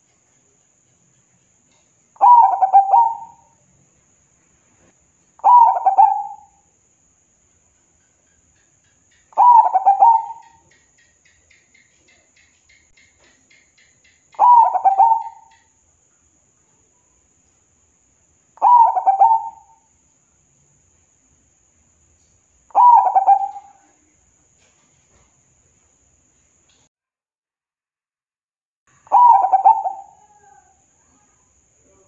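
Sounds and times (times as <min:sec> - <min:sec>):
dove cooing: 0:02.2 - 0:03.5, 0:05.4 - 0:06.6, 0:09.3 - 0:10.7, 0:14.4 - 0:15.7, 0:18.6 - 0:19.8, 0:22.7 - 0:24.0, 0:29.1 - 0:30.8.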